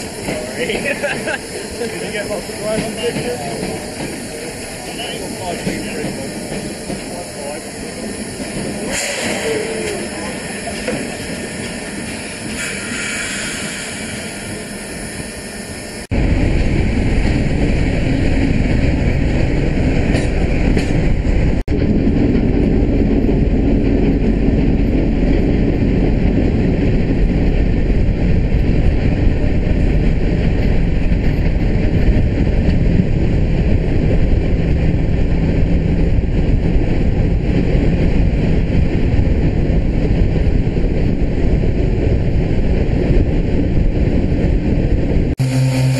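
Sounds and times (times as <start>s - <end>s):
steam train running rumble: 0.0s - 45.9s.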